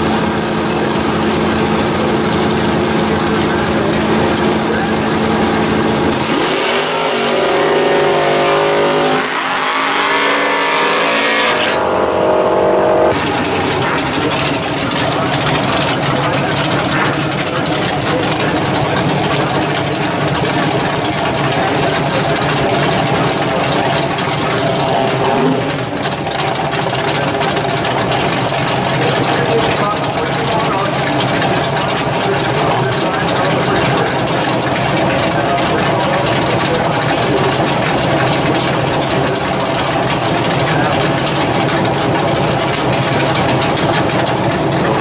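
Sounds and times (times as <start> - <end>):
car engine revving and pulling away: 0.0 - 45.0
car engine running loud: 0.0 - 45.0.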